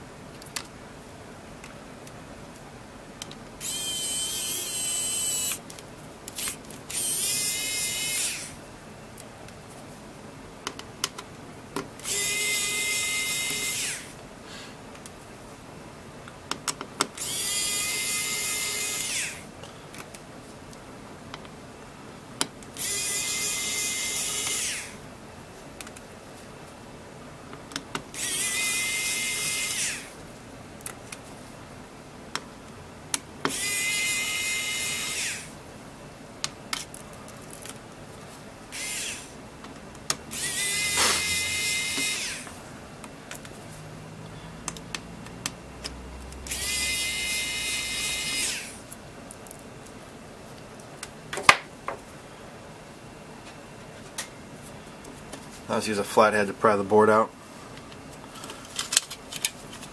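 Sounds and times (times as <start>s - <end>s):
electric screwdriver whirring: 3.6s - 5.6s, 6.3s - 8.5s, 12.0s - 14.1s, 17.2s - 19.4s, 22.8s - 24.9s, 28.2s - 30.1s, 33.5s - 35.5s, 38.8s - 39.3s, 40.3s - 42.6s, 46.5s - 48.8s.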